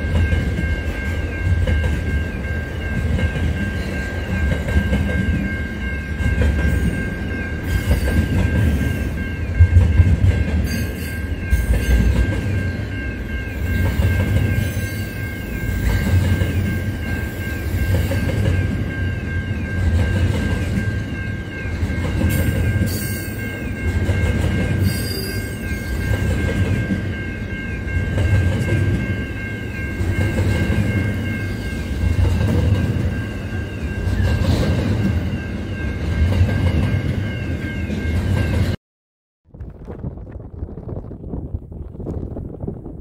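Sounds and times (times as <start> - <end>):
freight train wheels rumbling: 0.0 - 38.8.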